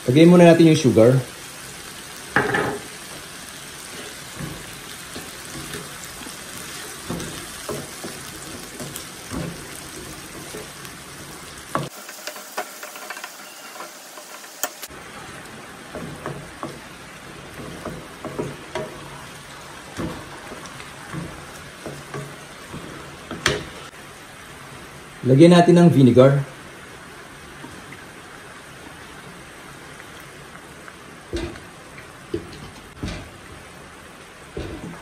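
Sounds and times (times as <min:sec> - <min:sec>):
vegetables sizzling in oil: 0:00.0 - 0:35.0
spatula knocking and scraping pan: 0:02.3 - 0:14.9, 0:15.9 - 0:23.9.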